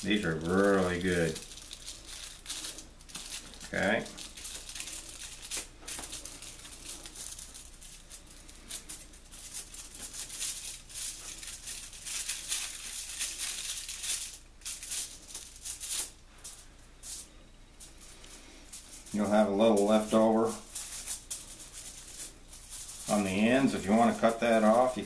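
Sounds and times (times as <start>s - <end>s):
aluminium foil crinkling: 0.0s - 25.0s.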